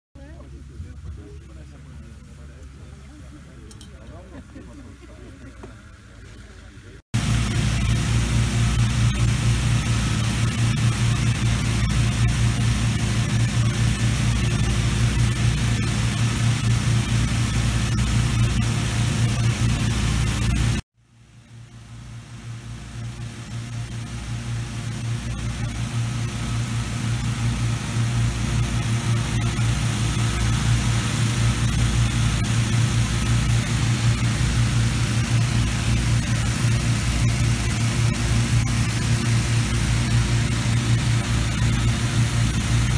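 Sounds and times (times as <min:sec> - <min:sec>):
low engine hum: 0:00.2 - 0:20.8
inflator fan rush of air: 0:07.2 - 0:20.8, 0:21.9 - 0:42.9.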